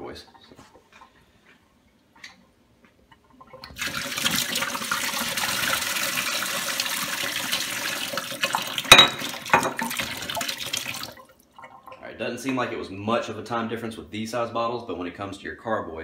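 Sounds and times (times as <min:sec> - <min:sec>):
water draining as vortex: 0:03.2 - 0:12.2.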